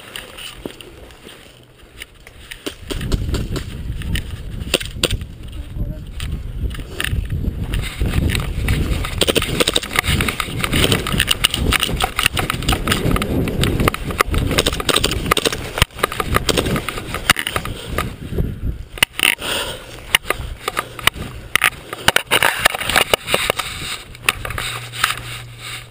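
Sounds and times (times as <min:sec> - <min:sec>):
clothing and grass rustling: 0:00.0 - 0:25.9.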